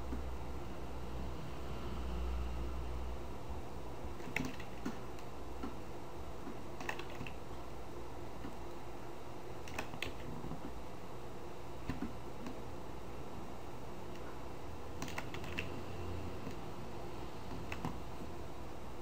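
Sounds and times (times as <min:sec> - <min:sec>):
steady low hum: 0:00.0 - 0:19.0
computer keyboard and mouse clicks: 0:04.2 - 0:05.8, 0:06.4 - 0:07.4, 0:09.6 - 0:10.8, 0:11.8 - 0:12.6, 0:15.0 - 0:15.8, 0:17.5 - 0:18.0.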